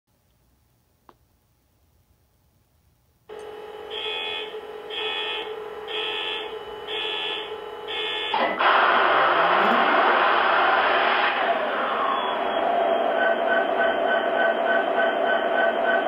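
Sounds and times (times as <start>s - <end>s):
buzzing alarm tones: 3.3s - 10.3s
loud diesel engine: 3.3s - 16.0s
steady electronic hum: 3.3s - 16.0s.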